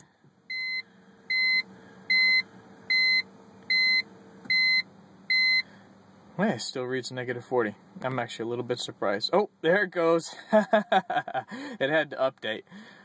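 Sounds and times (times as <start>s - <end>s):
faint steady hum: 0.0s - 13.0s
car warning chime beeping: 0.5s - 5.7s.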